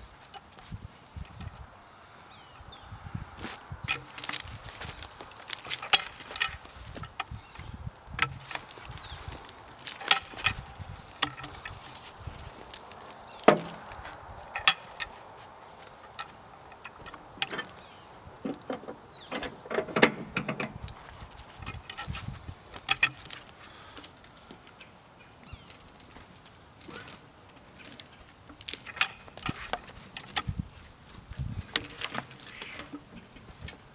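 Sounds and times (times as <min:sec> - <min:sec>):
log rolling rumble: 0:02.9 - 0:24.5
metal hook scraping and knocking on log: 0:03.4 - 0:24.0, 0:27.8 - 0:30.6, 0:31.6 - 0:33.8.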